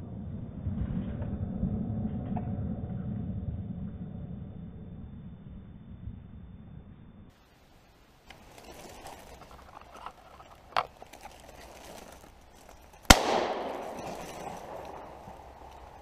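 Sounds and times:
shotgun shot echoing: 13.1s - 15.7s.

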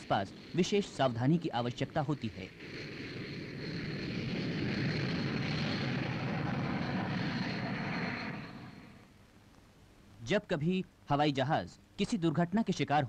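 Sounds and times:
jet engines rushing: 0.0s - 9.1s
jet engine high whine: 0.0s - 9.2s.

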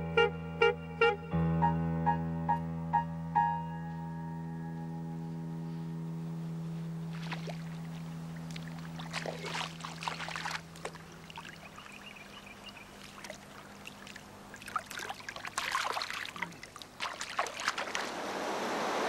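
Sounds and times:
water splashing and trickling: 7.1s - 19.0s.

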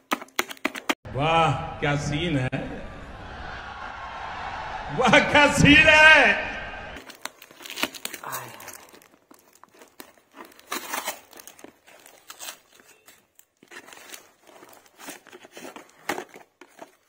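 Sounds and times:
parcel tape and cardboard ripping: 7.0s - 17.0s.

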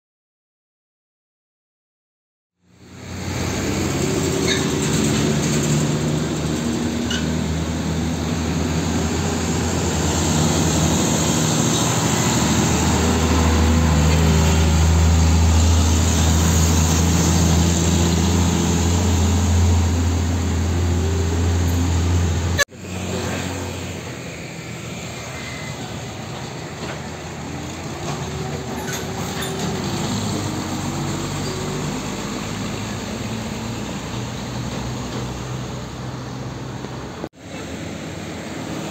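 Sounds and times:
diesel truck engine: 2.6s - 38.9s
tyre and traffic noise: 2.6s - 38.9s.

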